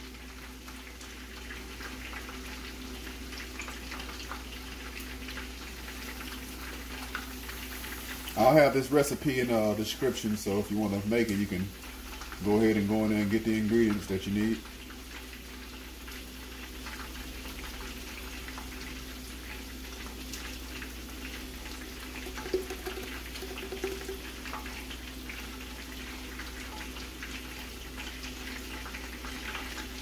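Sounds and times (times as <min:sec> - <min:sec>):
chicken sizzling in oil: 0:00.0 - 0:30.0
low steady hum: 0:21.3 - 0:26.7.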